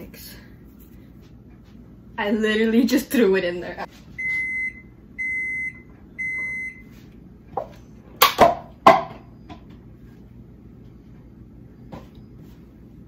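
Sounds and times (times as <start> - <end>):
appliance high beeps: 4.2 - 7.0.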